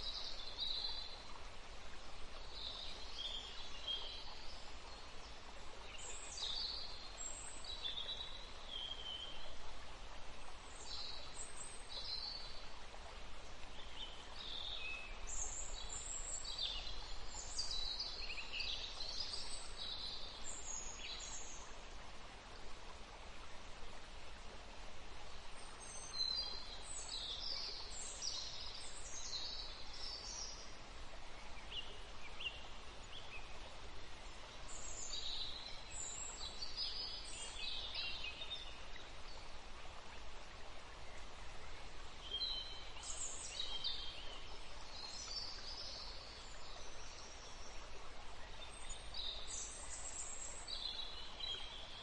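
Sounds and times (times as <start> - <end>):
outdoor ambient hiss: 0.0 - 52.0.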